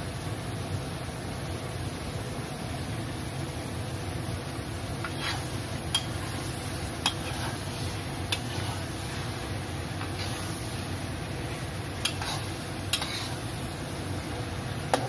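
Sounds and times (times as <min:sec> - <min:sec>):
food sizzling in a wok: 0:00.0 - 0:15.0
spatula clinking against wok: 0:05.0 - 0:06.3, 0:12.0 - 0:13.4.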